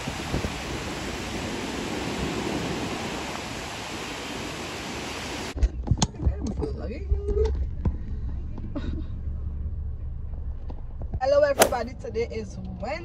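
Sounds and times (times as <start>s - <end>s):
ocean waves breaking on beach: 0.0s - 5.6s.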